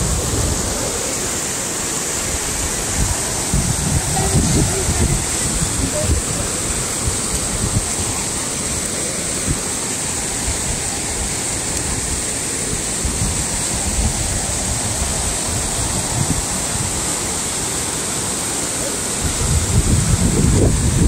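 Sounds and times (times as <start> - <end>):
stream rushing: 0.0 - 21.0.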